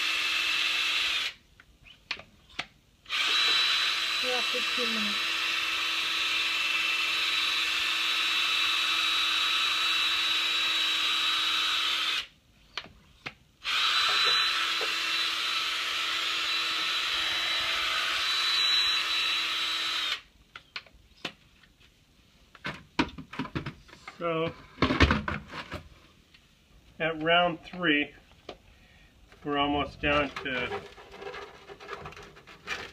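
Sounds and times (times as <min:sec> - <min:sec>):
cordless drill whining: 0:00.0 - 0:01.4, 0:03.1 - 0:12.3, 0:13.6 - 0:20.3.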